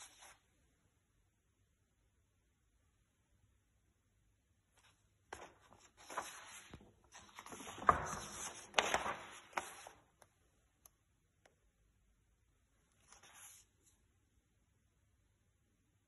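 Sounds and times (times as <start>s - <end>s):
paper rustling and crackling: 4.8s - 10.2s.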